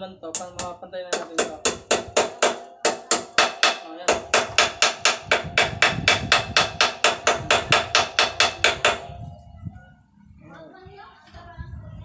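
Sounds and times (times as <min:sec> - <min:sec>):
hammer blows on metal: 0:00.4 - 0:09.3.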